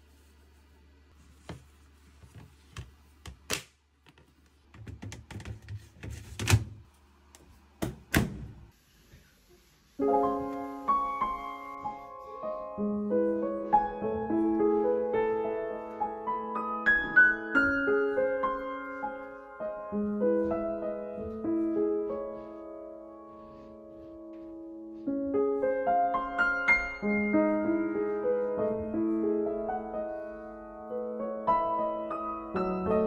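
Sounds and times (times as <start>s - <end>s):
piano music: 10.0s - 33.0s.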